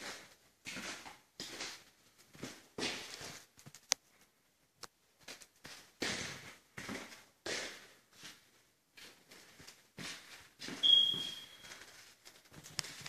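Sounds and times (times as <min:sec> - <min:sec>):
footsteps on stairs and wooden floor: 0:00.0 - 0:03.4, 0:05.2 - 0:13.0
short high squeak: 0:10.8 - 0:11.7.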